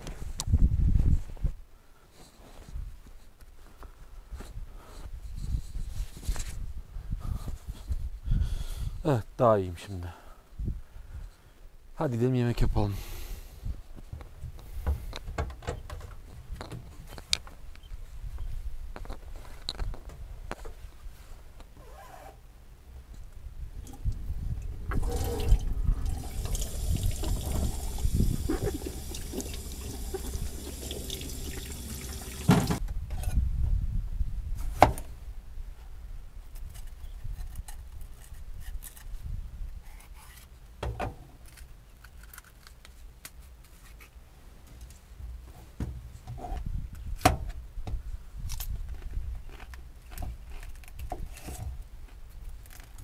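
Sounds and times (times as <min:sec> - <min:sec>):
tap water running into steel sink: 0:25.0 - 0:32.8.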